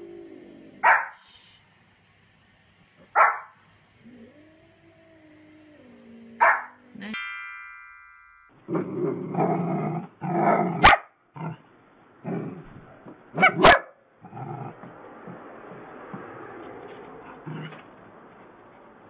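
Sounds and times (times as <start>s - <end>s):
dogs barking and growling: 0.0s - 1.2s, 3.0s - 6.9s, 8.7s - 16.4s, 17.2s - 17.9s
short ringing chime: 7.2s - 8.8s
dogs yapping: 13.4s - 13.9s.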